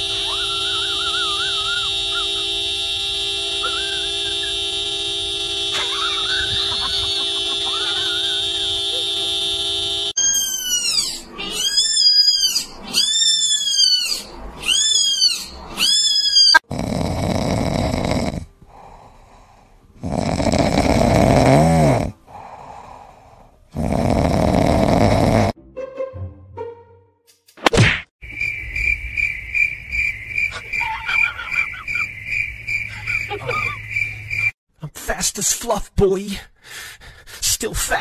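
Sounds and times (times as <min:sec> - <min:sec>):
car horn: 0:00.0 - 0:10.3
kitten crying: 0:10.2 - 0:16.6
cat snoring: 0:16.7 - 0:22.6, 0:23.7 - 0:25.6.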